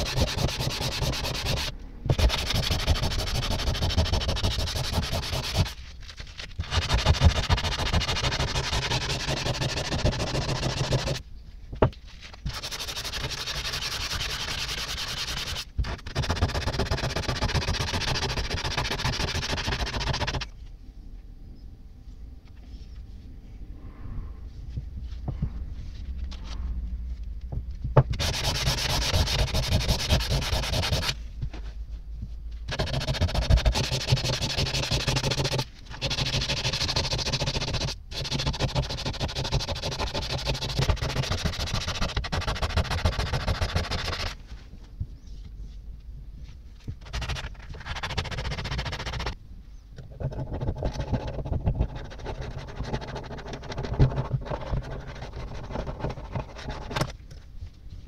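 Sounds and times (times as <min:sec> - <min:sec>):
sandpaper rubbing on steel: 0:00.0 - 0:05.8, 0:06.6 - 0:11.2, 0:12.4 - 0:20.5, 0:28.2 - 0:31.2, 0:32.7 - 0:44.4, 0:47.0 - 0:49.4.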